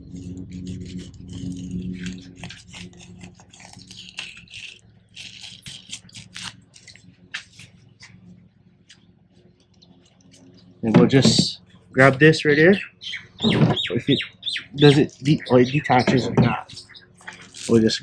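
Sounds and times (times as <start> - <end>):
steady low hum: 0.0 - 18.0
knife scraping fish scales: 0.1 - 7.7, 16.1 - 17.8.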